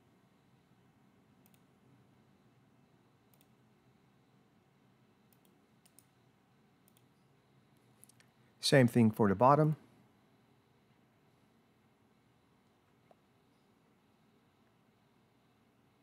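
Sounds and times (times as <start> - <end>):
computer mouse clicks: 1.4 - 1.7, 3.3 - 3.6, 5.3 - 6.2, 6.8 - 7.2.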